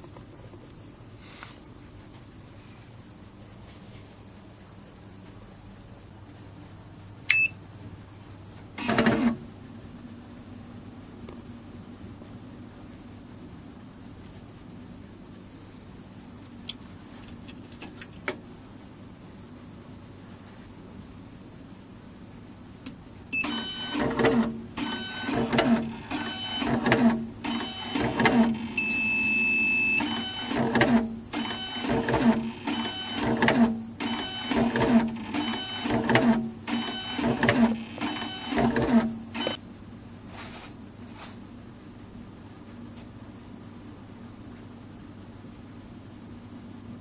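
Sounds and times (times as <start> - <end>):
short electronic beep: 28.8 - 30.1.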